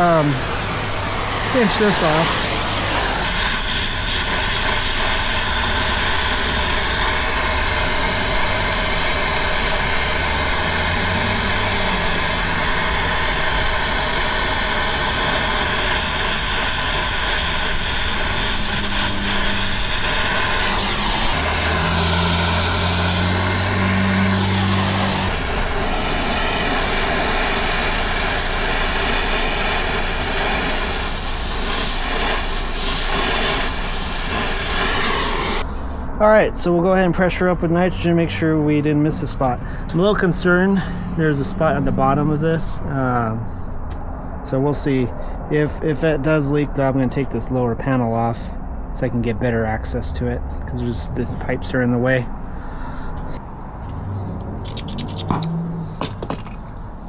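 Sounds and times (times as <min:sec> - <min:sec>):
torch flame hissing: 0:00.0 - 0:35.7.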